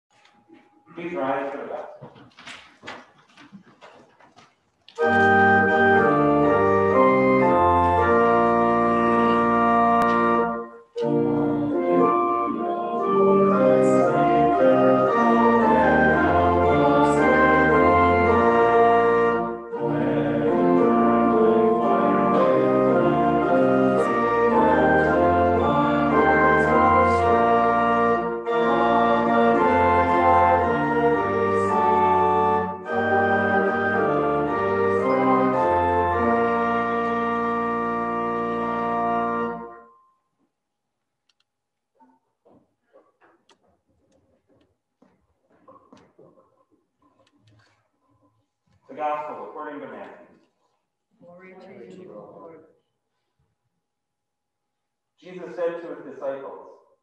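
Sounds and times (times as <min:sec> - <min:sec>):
organ playing slow held chords: 0:05.0 - 0:40.0.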